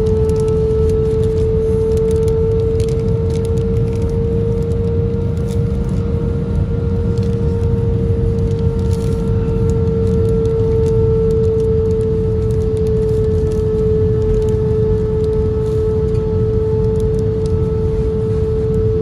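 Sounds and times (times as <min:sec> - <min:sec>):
cabin low rumble: 0:00.0 - 0:19.0
constant engine whine: 0:00.0 - 0:19.0
paper napkin crinkling: 0:07.2 - 0:16.2.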